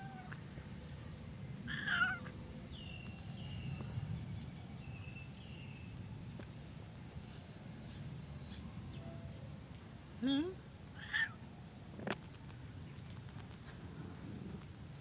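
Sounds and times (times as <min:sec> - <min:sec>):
cat meowing loudly: 0:00.0 - 0:00.4, 0:01.7 - 0:02.3, 0:11.0 - 0:11.4.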